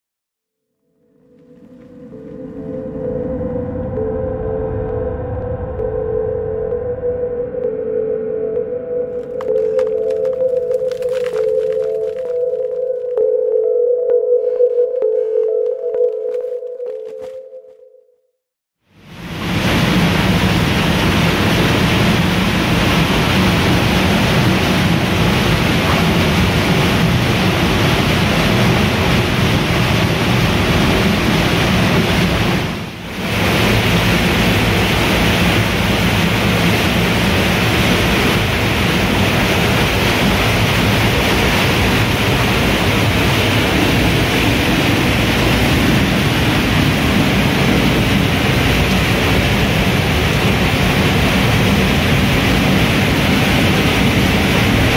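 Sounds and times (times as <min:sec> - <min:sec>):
floodwater rushing and cascading: 0:19.0 - 0:54.9.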